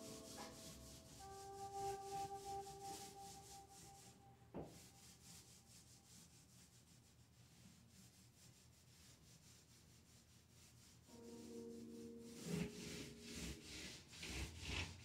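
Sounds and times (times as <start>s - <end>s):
held musical note: 0.0s - 4.4s, 11.1s - 14.2s
paint roller rubbing on wall: 0.0s - 15.0s.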